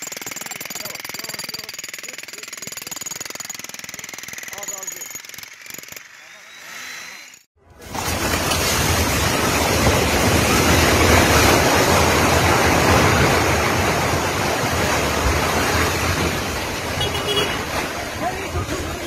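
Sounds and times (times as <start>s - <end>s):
roar of building collapsing: 7.7s - 17.0s.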